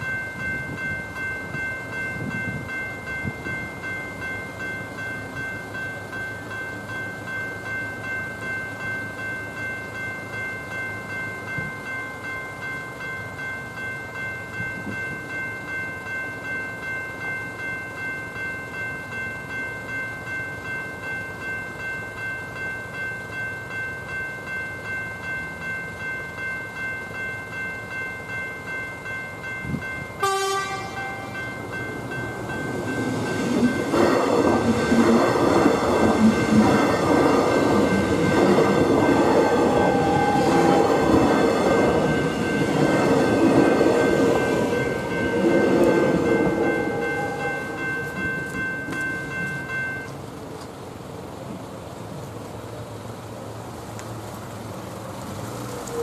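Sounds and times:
level crossing bells ringing: 0.0s - 50.2s
electric train passing: 0.0s - 56.0s
train horn blast: 30.2s - 31.4s.

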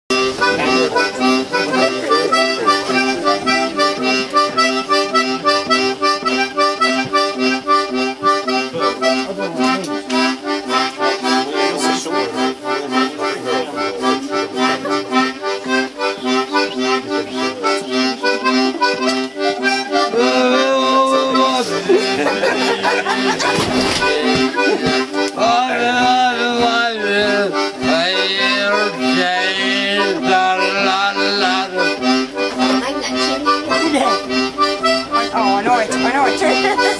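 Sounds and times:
busker playing lively tune: 0.1s - 36.9s.

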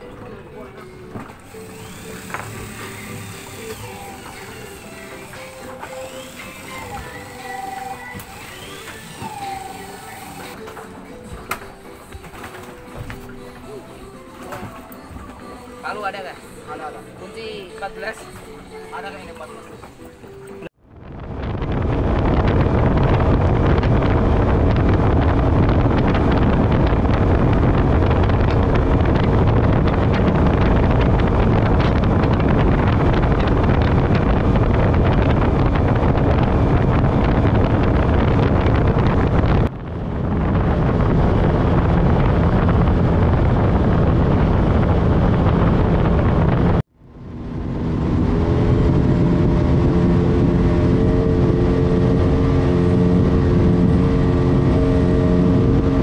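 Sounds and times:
outboard motor drone: 0.0s - 11.2s, 20.6s - 56.0s
rushing wind and water: 19.9s - 56.0s.

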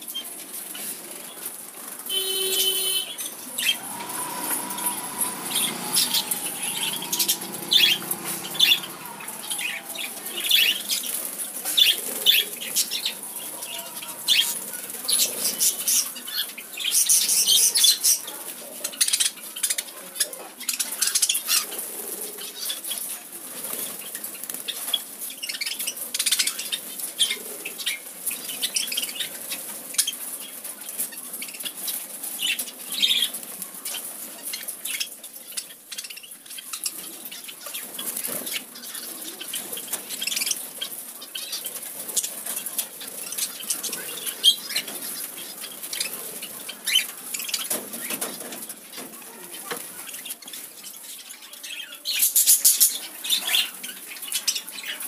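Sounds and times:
wings flapping: 0.4s - 16.1s.

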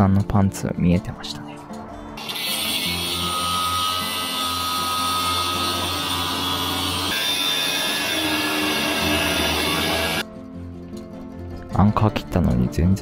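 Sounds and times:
angle grinder cutting metal: 2.2s - 10.2s.

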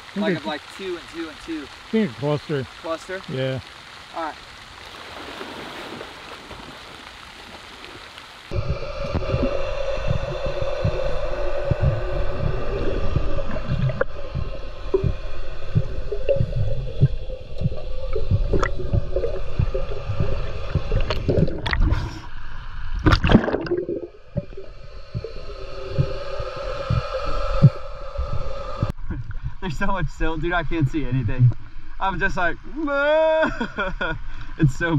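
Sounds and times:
muffled underwater gurgling: 8.5s - 22.2s
low underwater thumps: 8.5s - 22.3s, 23.0s - 26.2s
steady low hum: 8.5s - 31.9s.

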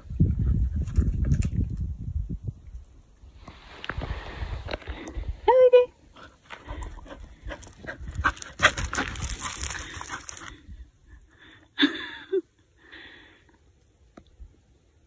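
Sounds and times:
dog paws crunching dry leaves: 8.3s - 10.6s.

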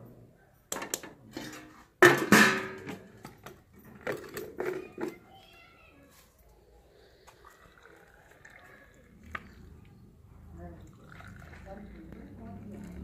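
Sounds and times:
metal lid clanging on pot: 0.7s - 3.1s.

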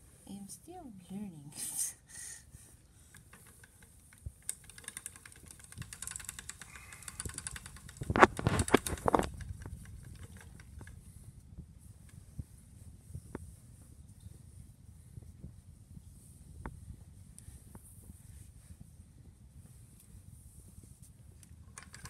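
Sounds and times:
spinning wheel clicking: 3.1s - 11.0s, 21.7s - 22.0s.

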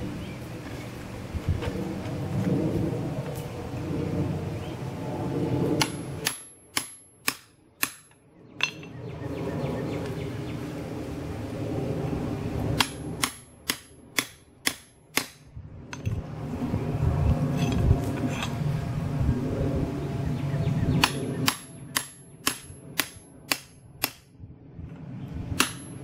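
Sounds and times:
steady low noise: 0.0s - 26.0s
hammer striking chisel on metal: 5.8s - 9.0s, 12.8s - 15.4s, 21.0s - 24.3s, 25.6s - 26.0s.

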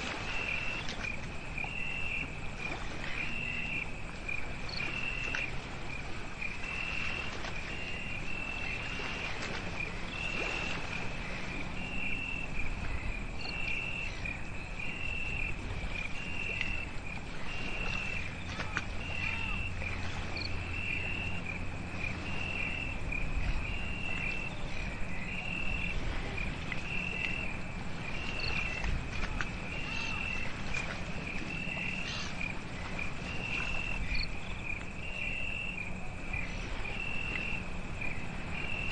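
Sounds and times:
cricket chirping: 0.0s - 38.9s.

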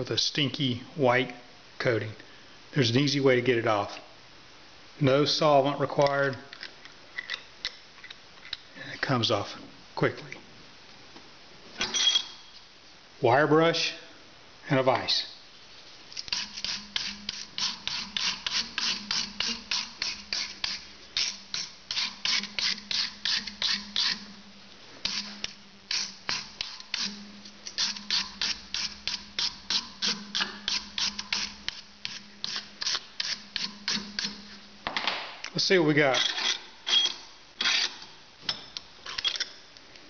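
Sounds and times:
wire brush scrubbing plastic: 16.2s - 24.3s, 25.0s - 34.6s.

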